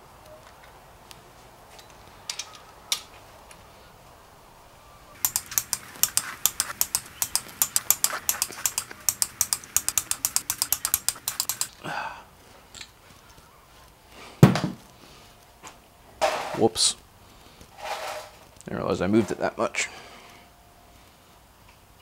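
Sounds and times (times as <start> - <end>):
hand ratchet clicking: 5.2 - 11.8
metal scrape: 17.8 - 18.4.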